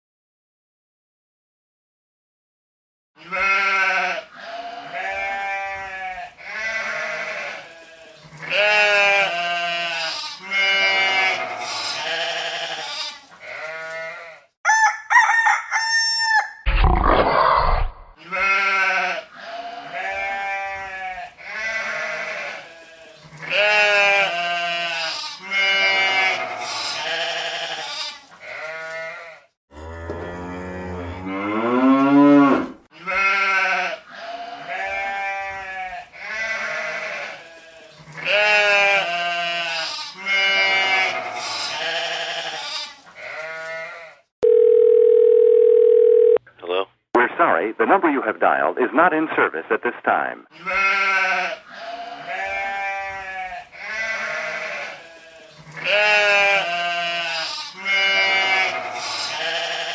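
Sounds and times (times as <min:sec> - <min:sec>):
goats bleating: 0:03.2 - 0:14.5, 0:18.2 - 0:29.5, 0:32.4 - 0:44.2, 0:50.5 - 0:59.9.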